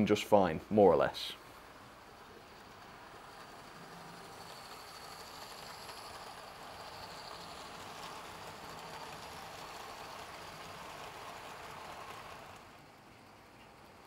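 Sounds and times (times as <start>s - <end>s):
model train motors whirring: 0.7s - 14.0s.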